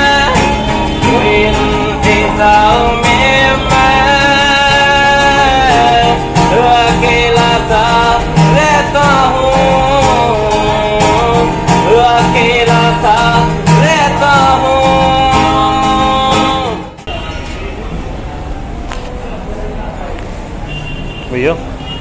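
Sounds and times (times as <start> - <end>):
man singing: 0.0 - 17.1
acoustic guitar strumming: 0.0 - 17.7.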